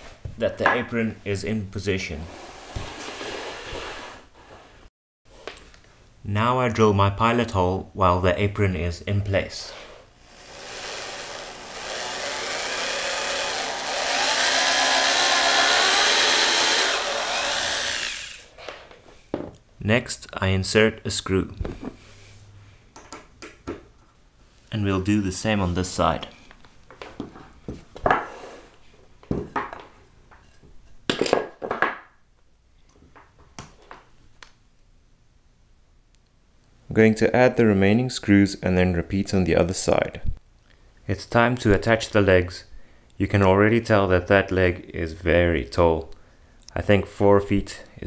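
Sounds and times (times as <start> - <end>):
electric drill boring into wood: 10.2 - 18.5.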